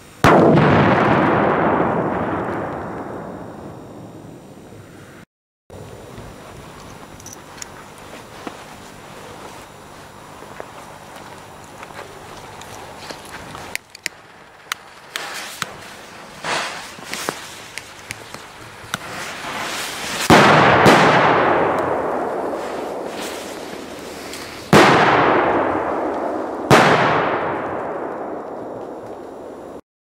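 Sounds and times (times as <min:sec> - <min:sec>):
loud firecracker bangs echoing: 0:00.2 - 0:04.5, 0:15.2 - 0:17.5, 0:18.4 - 0:29.8
footsteps on grass: 0:06.4 - 0:13.7, 0:14.6 - 0:20.3, 0:22.3 - 0:24.8.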